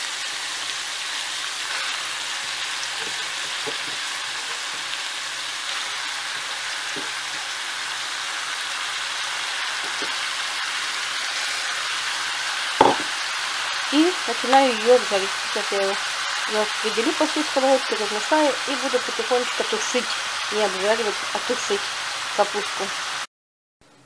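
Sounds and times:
meat sizzling in a frying pan: 0.0 - 23.3
knocks: 12.8 - 13.1.

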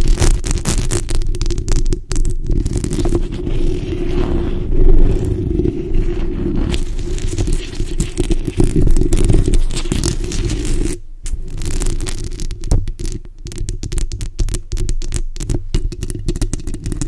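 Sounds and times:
fingernails scratching microphone grille: 0.0 - 12.5.

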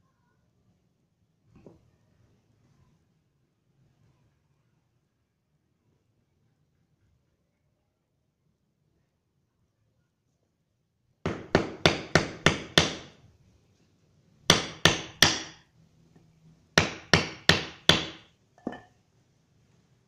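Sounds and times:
light metal clink: 18.6 - 19.0.

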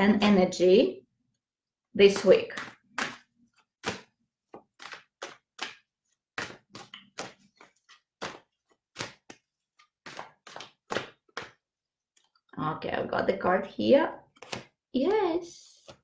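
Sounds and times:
cards being shuffled: 2.1 - 12.5, 14.3 - 14.8.

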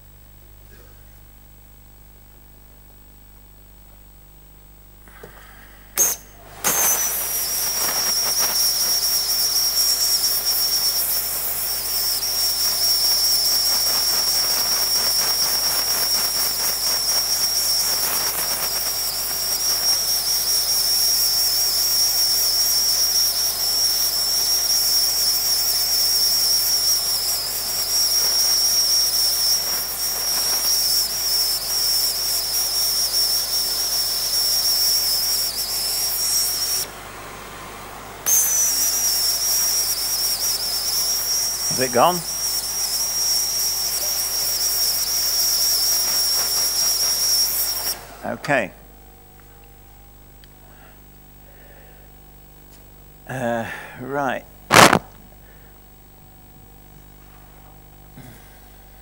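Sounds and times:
steam gun hissing: 5.1 - 36.9, 38.2 - 48.3, 54.7 - 55.1.

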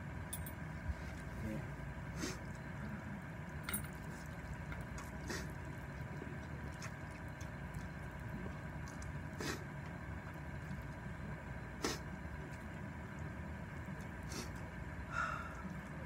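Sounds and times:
person slurping noodles: 9.3 - 9.7, 11.8 - 12.1.

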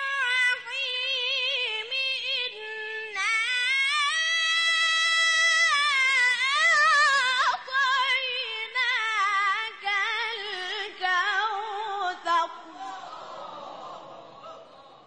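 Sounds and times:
person reciting melodically: 0.0 - 13.5.

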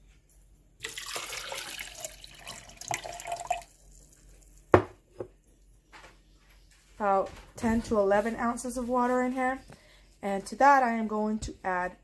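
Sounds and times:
water pouring into plastic cup: 0.8 - 4.1.

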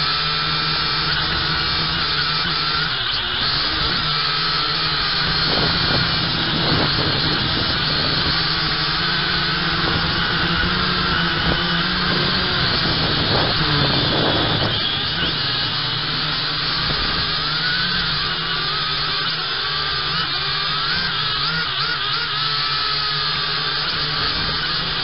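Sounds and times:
drone propellers whining: 0.0 - 25.0.

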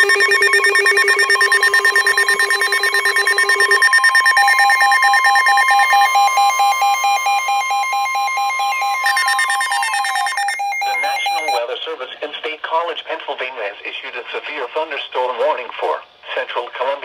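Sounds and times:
rapid pulsing beeps: 0.0 - 11.6
steady warning tone: 0.0 - 11.6.

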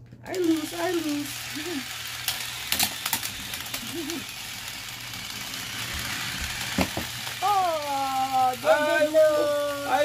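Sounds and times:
small motors whirring: 0.3 - 10.0.

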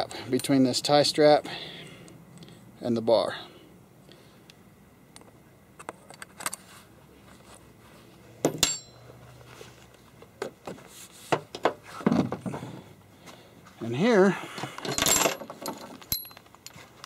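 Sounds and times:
ringing metal clank: 8.5 - 9.1
chainsaw chain rattling: 14.8 - 17.0.

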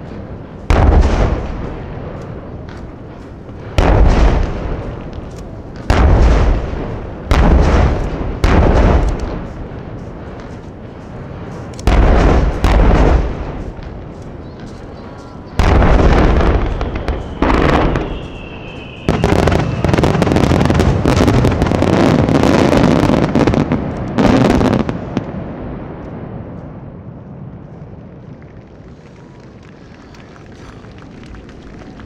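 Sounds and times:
echoing rumble: 0.0 - 32.0
fireworks booming: 0.0 - 32.0
fireworks crackling: 0.0 - 32.0
falling whistle: 16.7 - 20.1.

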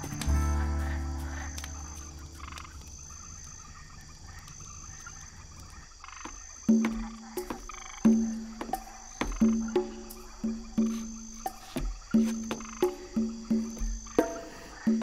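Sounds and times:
low drone: 0.0 - 3.5
frogs croaking: 0.0 - 15.0.

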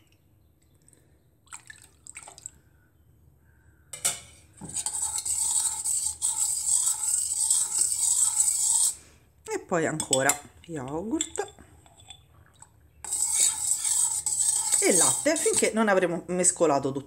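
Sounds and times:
metal spoon scraping bowl: 4.0 - 9.1, 9.9 - 12.3, 13.0 - 15.9.

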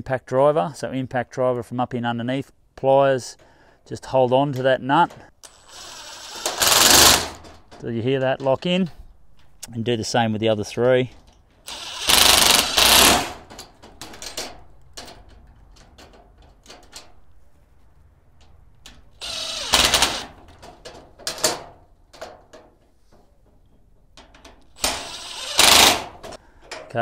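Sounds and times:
impact driver bursts: 5.5 - 7.4, 11.7 - 13.4, 19.2 - 20.4, 24.8 - 26.3.

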